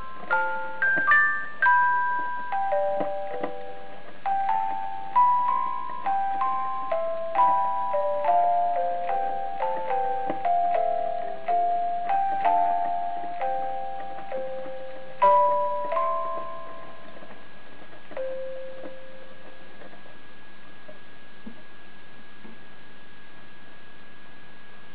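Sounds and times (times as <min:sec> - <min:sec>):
toy barrel organ melody: 0:00.0 - 0:17.5, 0:18.1 - 0:19.6
faint steady tone: 0:00.0 - 0:24.9.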